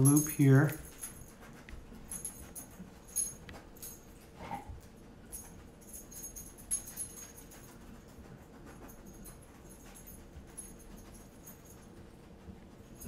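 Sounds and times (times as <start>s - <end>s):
dog collar tags jingling: 0.0s - 4.4s, 5.2s - 8.1s.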